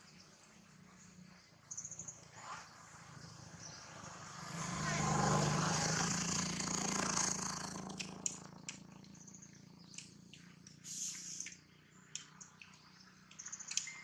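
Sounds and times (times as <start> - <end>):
sharp clicks and crackles: 7.7 - 9.2, 9.9 - 14.0.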